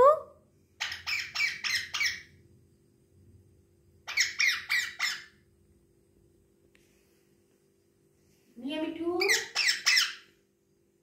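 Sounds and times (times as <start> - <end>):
parakeet screeching: 0.8 - 2.4, 4.0 - 5.5, 9.2 - 10.3.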